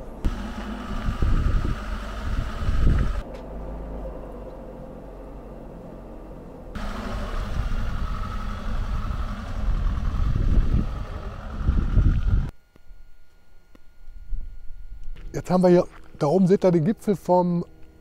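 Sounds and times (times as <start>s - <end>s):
vehicle engine and road noise: 0.0s - 12.5s.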